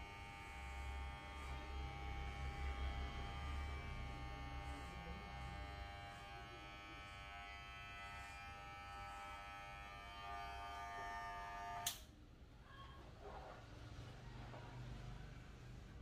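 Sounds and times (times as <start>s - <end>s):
electric hair clippers buzzing: 0.0s - 12.0s.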